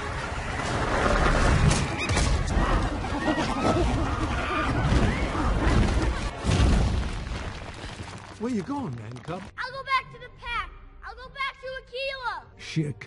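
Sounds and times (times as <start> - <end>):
heavy crashes: 0.6 - 8.5.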